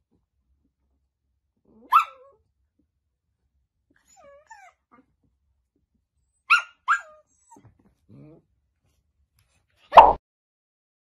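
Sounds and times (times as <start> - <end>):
puppy yipping: 1.8 - 2.4, 4.0 - 5.0, 6.3 - 7.8.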